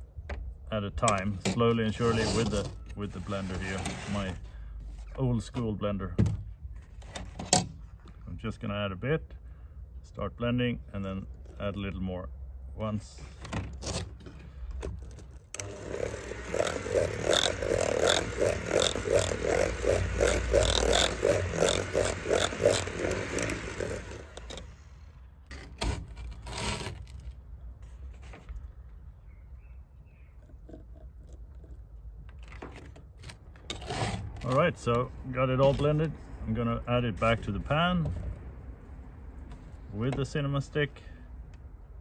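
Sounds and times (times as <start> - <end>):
beaters scraping plastic bowl: 1.8 - 4.4, 15.6 - 24.7
electric hand mixer whisking: 15.6 - 24.7.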